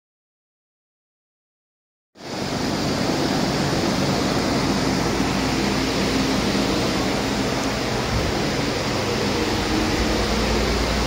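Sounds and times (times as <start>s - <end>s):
diesel engine running steadily: 2.2s - 11.0s.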